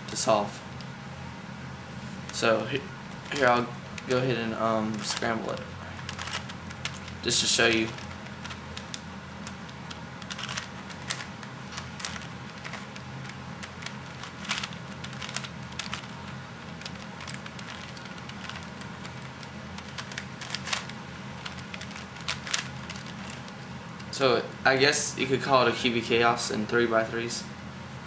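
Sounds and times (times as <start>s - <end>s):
steady low hum: 0.0s - 28.0s
plastic puzzle clicking: 16.7s - 23.4s.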